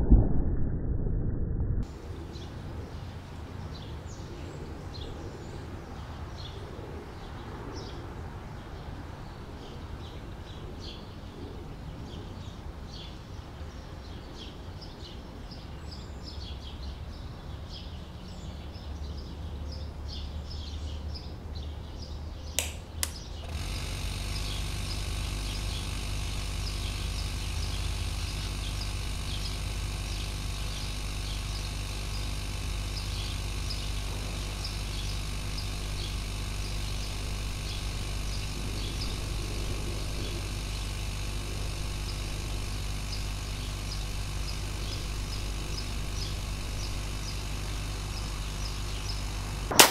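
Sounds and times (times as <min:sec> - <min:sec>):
compressor humming: 0:22.5 - 0:49.9
sharp clicks: 0:22.6 - 0:23.8
birds chirping: 0:24.2 - 0:49.9.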